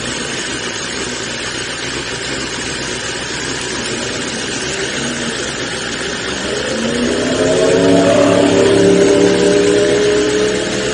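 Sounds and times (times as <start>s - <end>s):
motorcycle engine idling: 0.0s - 7.0s.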